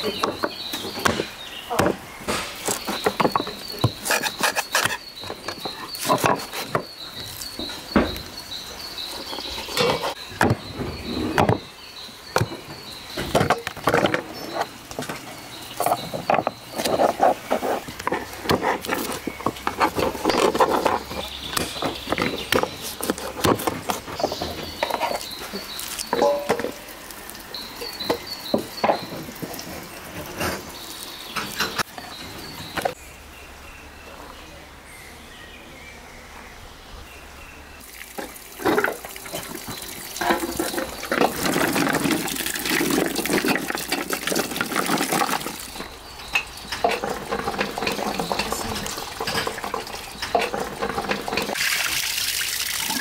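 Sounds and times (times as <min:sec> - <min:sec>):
crickets chirping: 0:02.6 - 0:35.6.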